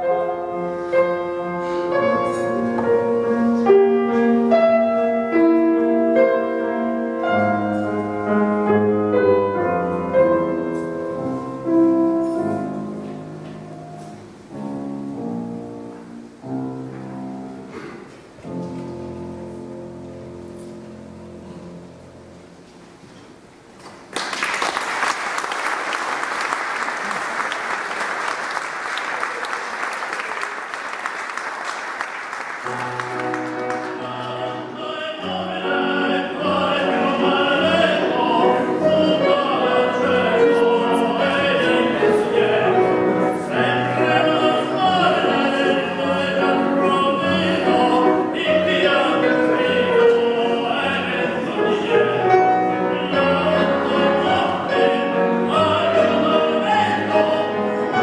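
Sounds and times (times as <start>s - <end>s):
grand piano playing: 0.0s - 23.7s, 25.2s - 58.0s
audience applauding: 23.8s - 34.4s
operatic singing: 33.2s - 58.0s.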